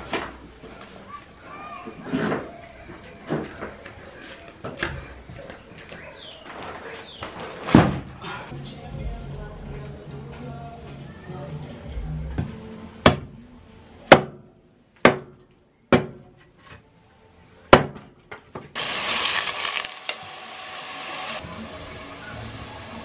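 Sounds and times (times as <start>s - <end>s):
food sizzling in a pan: 18.8s - 23.0s.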